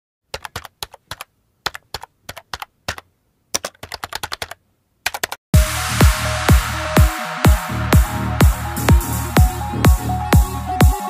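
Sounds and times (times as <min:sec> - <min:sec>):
keyboard typing clicks: 0:00.3 - 0:05.4
electronic dance music: 0:05.6 - 0:11.0.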